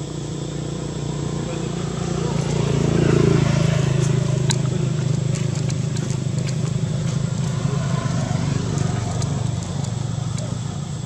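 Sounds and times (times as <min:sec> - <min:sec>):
motor vehicle engine hum: 0:00.0 - 0:11.0
faint clicks: 0:04.4 - 0:10.7.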